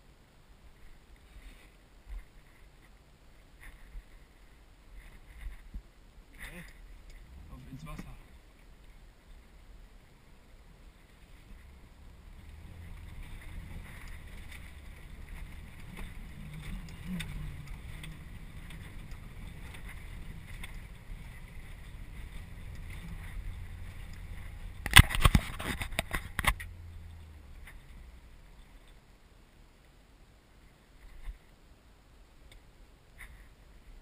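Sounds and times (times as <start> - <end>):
car engine running low: 6.3 - 29.3
water washing around car: 6.4 - 29.0.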